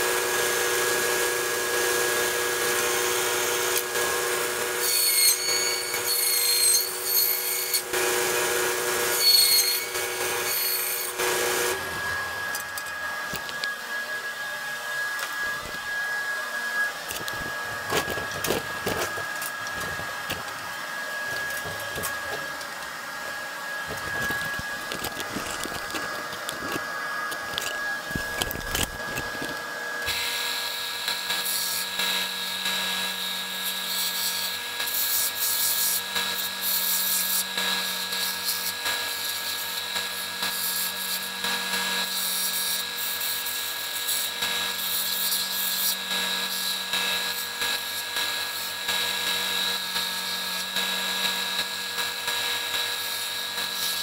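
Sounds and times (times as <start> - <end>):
bandsaw cutting plastic: 0.0 - 14.1, 15.0 - 54.0
steady power tool: 0.0 - 54.0
scraping and knocks: 17.1 - 22.8, 23.8 - 29.7.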